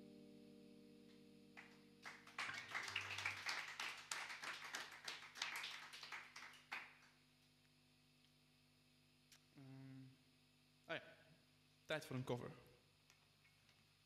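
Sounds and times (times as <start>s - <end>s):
electric guitar chord: 0.0s - 3.5s
brief applause: 1.6s - 7.0s.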